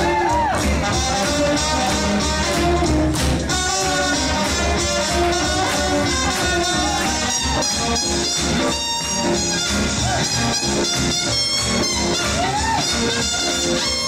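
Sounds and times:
swing band playing jazz: 0:00.0 - 0:14.0.

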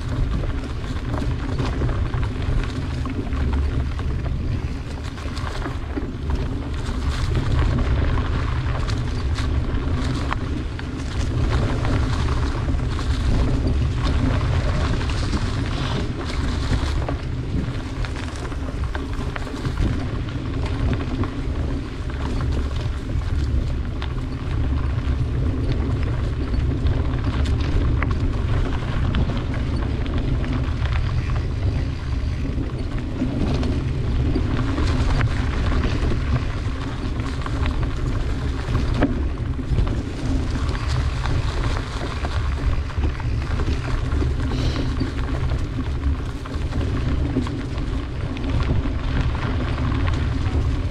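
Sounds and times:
bicycle tyres on dirt: 0:00.0 - 0:50.9
bike clicks and rattles: 0:00.0 - 0:50.9
wind rumble on microphone: 0:00.0 - 0:50.9.

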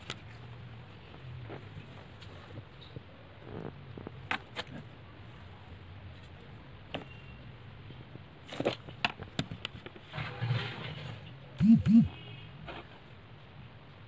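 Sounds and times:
low steady hum: 0:11.6 - 0:12.5.

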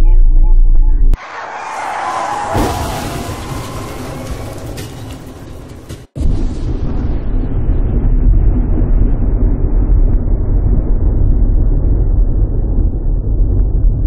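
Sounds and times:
deep steady rumble: 0:00.0 - 0:01.2, 0:04.2 - 0:14.0.

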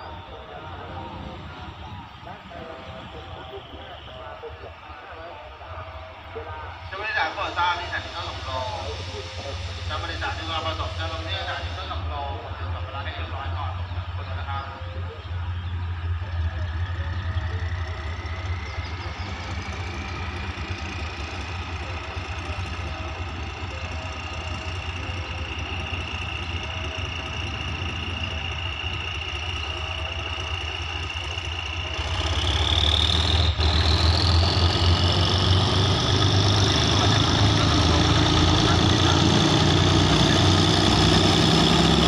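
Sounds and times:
diesel locomotive engine droning: 0:00.0 - 0:42.0.

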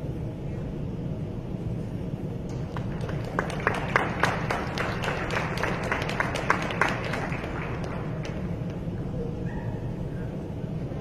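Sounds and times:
hall hum: 0:00.0 - 0:11.0
scattered clapping: 0:02.5 - 0:08.8.

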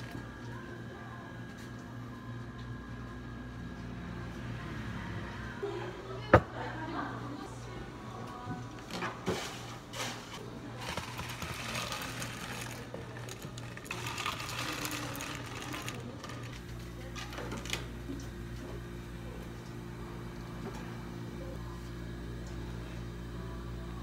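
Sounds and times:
low hum of cafe equipment: 0:00.0 - 0:24.0.

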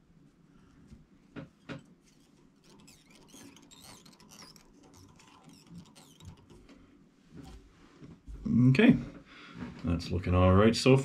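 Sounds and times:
tying thread squeaking: 0:01.5 - 0:07.7.

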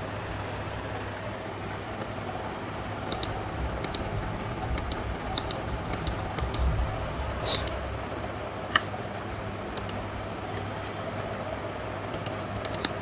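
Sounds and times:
low hum and hiss: 0:00.0 - 0:13.0
computer mouse buttons clicking: 0:03.1 - 0:04.1, 0:04.7 - 0:06.7, 0:07.4 - 0:07.8, 0:09.8 - 0:10.0, 0:12.1 - 0:13.0.

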